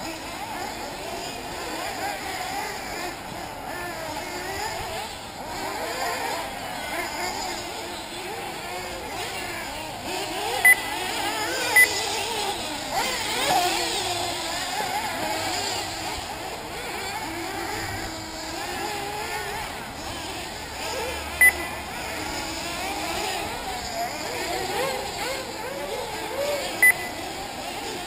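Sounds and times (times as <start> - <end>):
rc car engines racing: 0.0 - 28.0
short loud beeps: 10.6 - 10.9, 21.4 - 21.7, 26.8 - 27.2.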